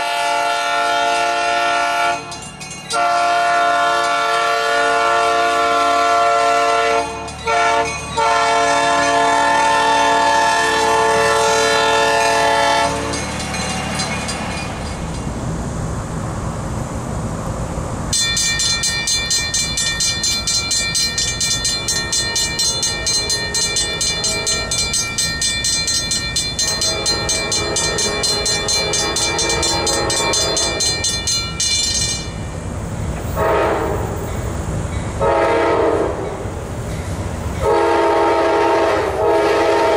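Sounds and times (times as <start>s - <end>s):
train horn: 0.0s - 13.2s, 26.6s - 31.0s, 33.4s - 34.2s, 35.2s - 36.5s, 37.6s - 39.9s
low train rumble: 0.0s - 39.9s
railroad crossing bell ringing: 1.0s - 15.5s, 18.1s - 32.6s, 33.4s - 39.9s.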